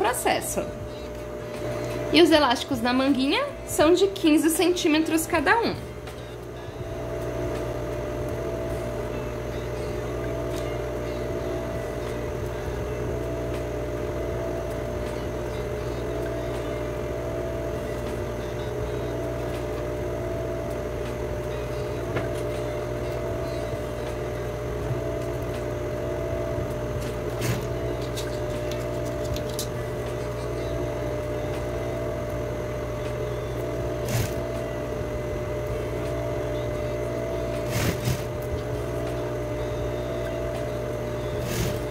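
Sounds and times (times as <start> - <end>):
sewing machine running: 26.9 - 29.7, 33.8 - 34.6, 37.4 - 39.6, 40.5 - 41.9.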